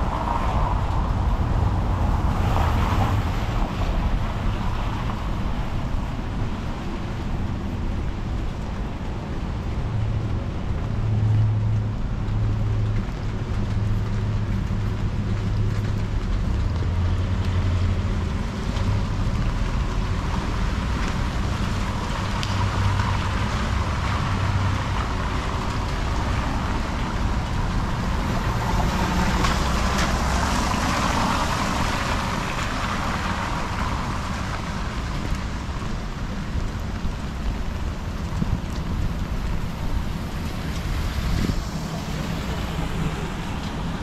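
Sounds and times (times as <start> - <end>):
vehicle passing with hiss: 0.0 - 7.3, 19.9 - 36.0, 39.0 - 44.0
low engine rumble: 0.0 - 44.0
rain falling: 0.0 - 44.0.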